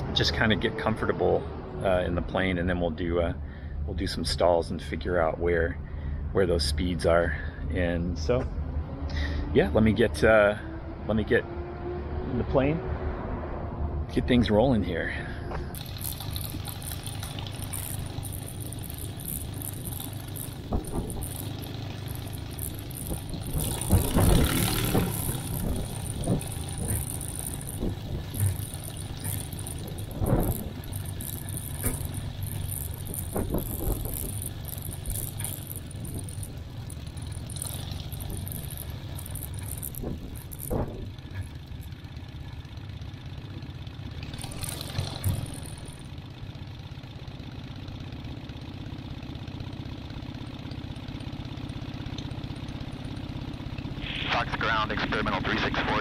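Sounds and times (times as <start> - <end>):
light aircraft engine idling: 15.2 - 56.0
sharp knocks and rattles: 15.6 - 42.7, 43.4 - 46.2.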